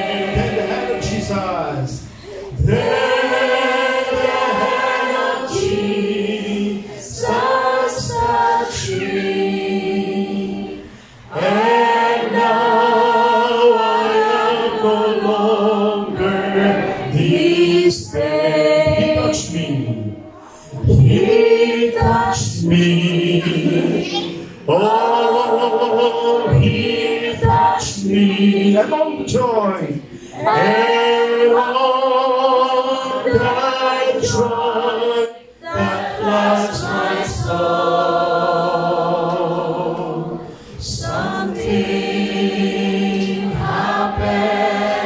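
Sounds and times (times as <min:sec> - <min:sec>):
congregation singing a hymn: 0:00.0 - 0:45.0.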